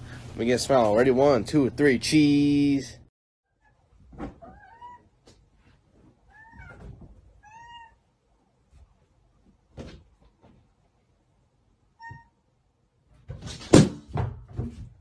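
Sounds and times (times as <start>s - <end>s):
cat meowing: 4.4s - 5.1s, 6.3s - 8.0s.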